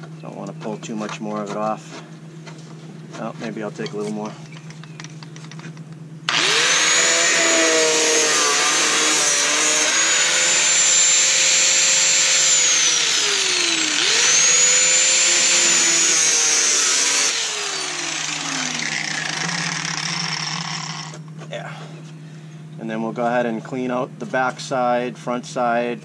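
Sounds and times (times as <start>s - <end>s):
angle grinder cutting sheet metal: 6.3s - 21.2s
grinder winding down: 6.3s - 21.2s.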